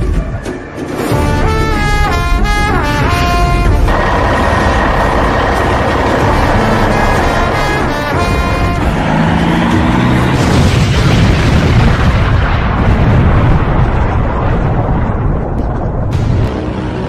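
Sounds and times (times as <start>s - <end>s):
explosion blast with rumble: 10.2s - 16.7s.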